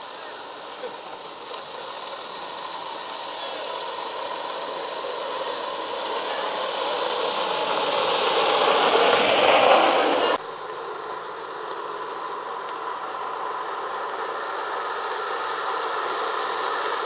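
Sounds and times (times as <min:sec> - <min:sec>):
wooden cart rolling on asphalt: 0:00.0 - 0:17.0.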